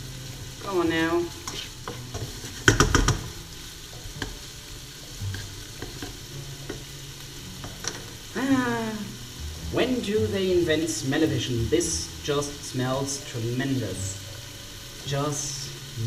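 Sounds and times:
bacon sizzling in a pan: 0:00.0 - 0:16.0
spatula stirring: 0:01.4 - 0:08.2.

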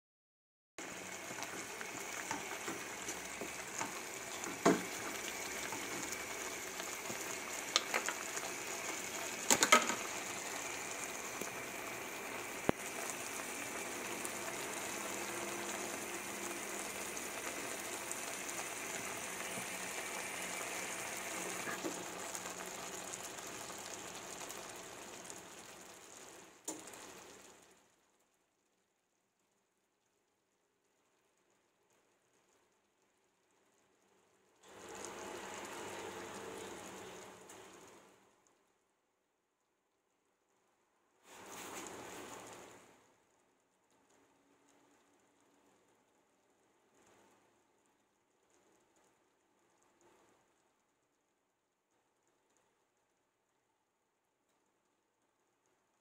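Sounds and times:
stir-fry sizzling in a wok: 0:00.8 - 0:27.8, 0:34.6 - 0:38.1, 0:41.2 - 0:42.9.

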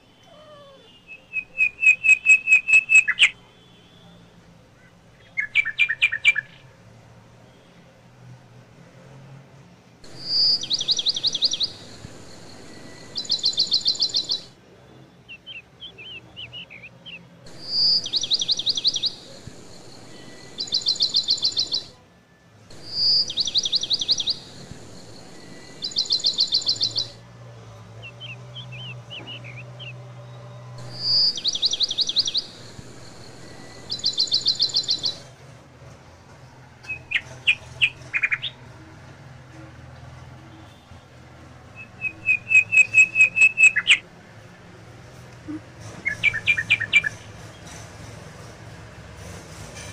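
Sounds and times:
bird song with trills: 0:00.1 - 0:04.2, 0:04.8 - 0:06.7, 0:10.1 - 0:22.0, 0:22.7 - 0:27.2, 0:28.0 - 0:35.3, 0:36.8 - 0:38.8, 0:41.8 - 0:44.1, 0:45.9 - 0:47.9
soft bird chirps: 0:10.1 - 0:22.0, 0:22.7 - 0:27.2, 0:28.0 - 0:35.3, 0:41.8 - 0:44.1, 0:45.5 - 0:47.8.

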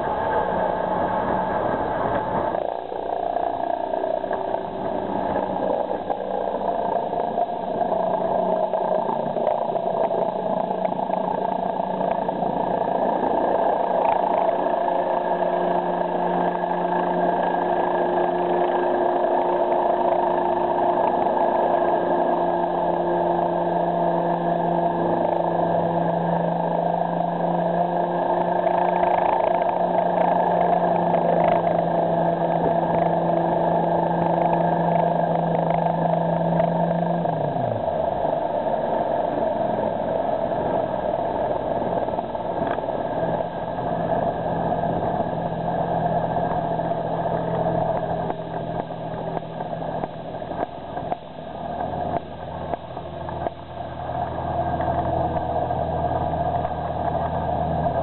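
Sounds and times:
helicopter engine and rotor: 0:01.8 - 0:22.7.

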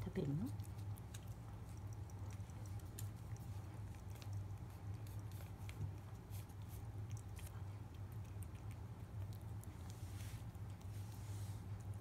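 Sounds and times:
cat licking wet clicks and smacks: 0:00.5 - 0:09.9.

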